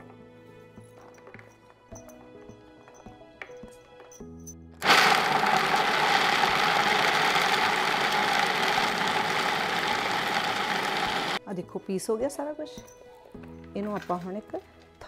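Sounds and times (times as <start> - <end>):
food processor grinding nuts: 4.8 - 11.4.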